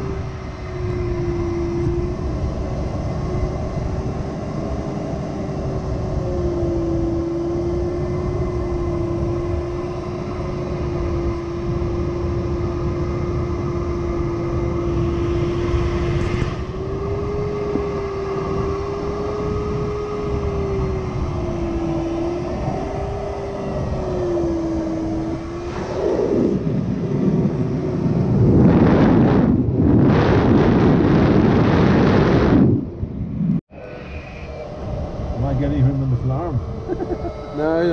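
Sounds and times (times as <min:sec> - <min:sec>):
variometer audio tone: 0:00.0 - 0:37.9
air rushing past canopy: 0:12.0 - 0:17.7.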